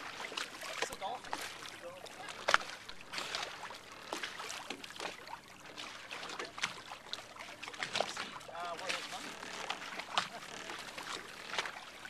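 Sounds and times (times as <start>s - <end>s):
water splashing against boat hull: 0.0s - 12.0s.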